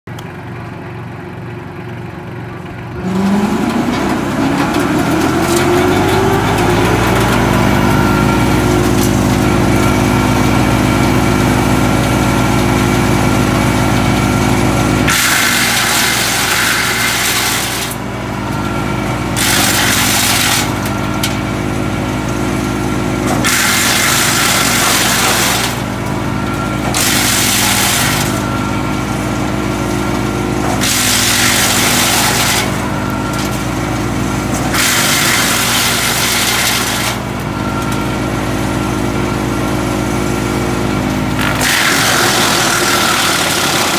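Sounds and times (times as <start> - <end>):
tractor engine: 0.0 - 43.9
drum chipper whine: 2.9 - 43.9
branches being shredded: 15.1 - 18.0, 19.3 - 21.4, 23.2 - 38.0, 41.3 - 43.9.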